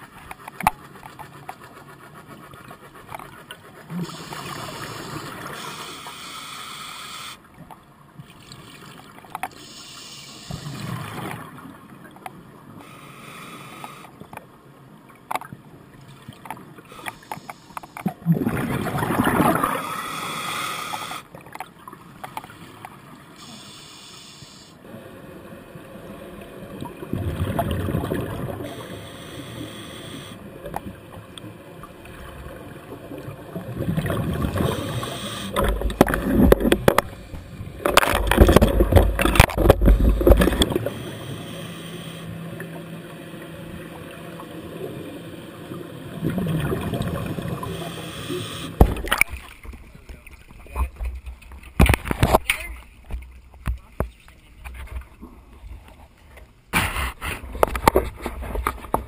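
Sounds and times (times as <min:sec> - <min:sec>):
underwater bubbles gurgling: 0:07.5 - 0:12.8, 0:15.9 - 0:23.7, 0:24.9 - 0:52.4
small clicks and knocks: 0:15.2 - 0:15.6.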